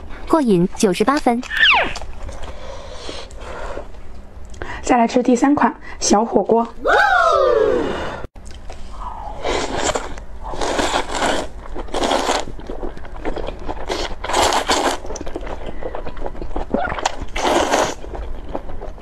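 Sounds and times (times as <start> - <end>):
loud slurping of noodles: 9.3 - 12.5, 17.3 - 18.0.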